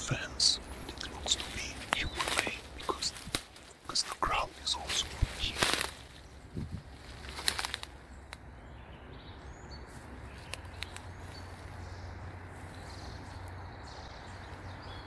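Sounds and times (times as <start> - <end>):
steady low rumble: 0.0 - 15.0
dry leaves crackling underfoot: 0.2 - 8.4, 9.8 - 14.7
faint twig-like clicks: 0.8 - 3.7, 5.5 - 6.0, 7.3 - 8.5, 10.4 - 11.2.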